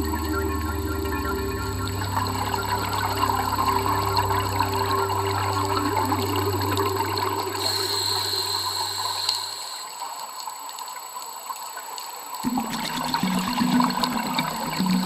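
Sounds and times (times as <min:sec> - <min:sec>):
low sound: 0:00.0 - 0:09.9
low steady hum: 0:00.0 - 0:10.0
underwater bubbling and gurgling: 0:00.0 - 0:15.0.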